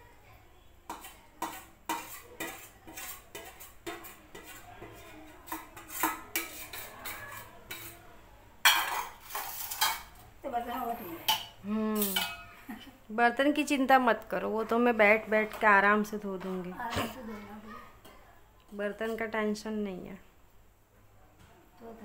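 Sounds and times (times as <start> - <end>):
ladle scraping a steel pot: 0.9 - 8.0, 8.8 - 10.1.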